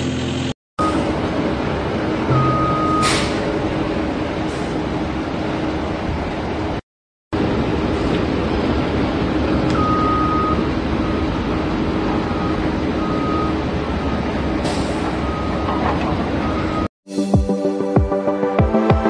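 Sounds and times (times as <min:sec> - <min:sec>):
heavy truck engine: 0:00.0 - 0:06.8, 0:07.4 - 0:16.9
reversing alarm beeps: 0:02.3 - 0:03.4, 0:09.7 - 0:11.4, 0:12.2 - 0:13.6, 0:15.2 - 0:15.8, 0:16.4 - 0:16.9.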